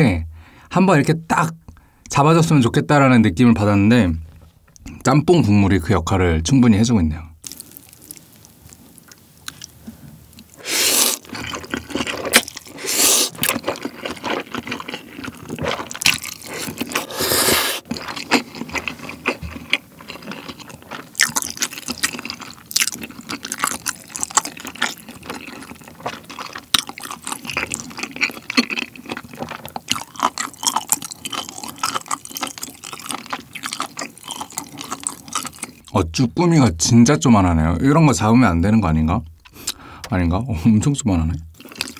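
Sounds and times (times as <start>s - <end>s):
wet chewing with mouth clicks: 7.4s - 35.9s, 41.5s - 41.9s
slurping noodles: 10.6s - 18.5s.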